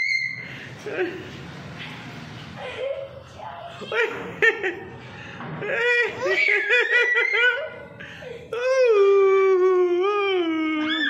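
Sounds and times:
toddler squealing: 0:00.0 - 0:00.5, 0:06.2 - 0:07.8, 0:10.8 - 0:11.0
toddler laughing: 0:02.6 - 0:04.9, 0:05.6 - 0:08.6.

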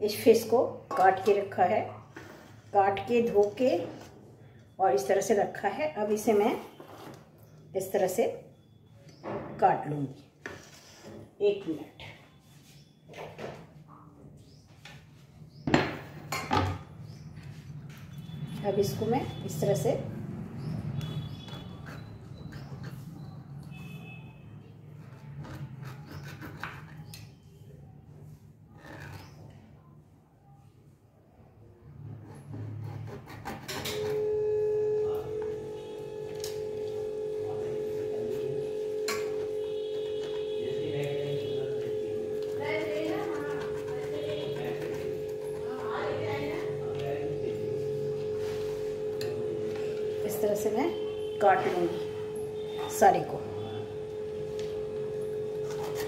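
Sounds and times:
horn-like tone: 0:23.6 - 0:24.7, 0:33.9 - 0:56.0.

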